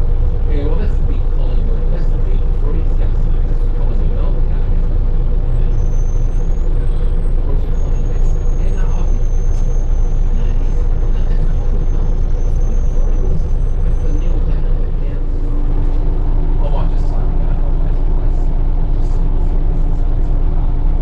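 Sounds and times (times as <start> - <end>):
bus diesel engine droning: 0.0 - 21.0.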